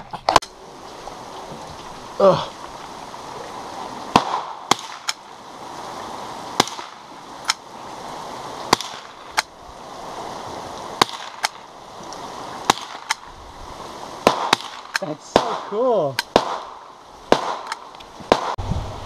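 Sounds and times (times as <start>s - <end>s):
steady hiss: 0.0s - 19.0s
rifle shots cracking: 4.1s - 5.2s, 6.6s - 7.6s, 8.7s - 9.5s, 11.0s - 11.6s, 12.7s - 13.3s, 14.2s - 18.6s.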